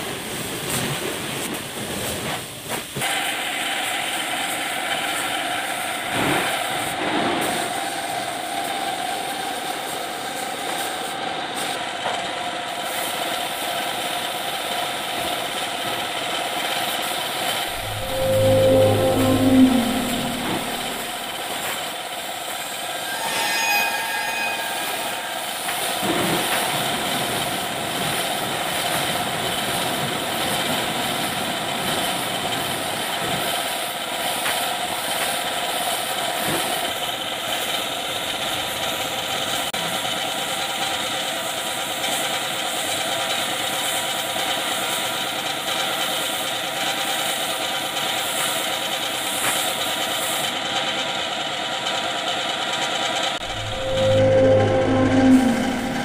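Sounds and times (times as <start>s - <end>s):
machine running: 17.5s - 23.1s, 53.4s - 56.0s.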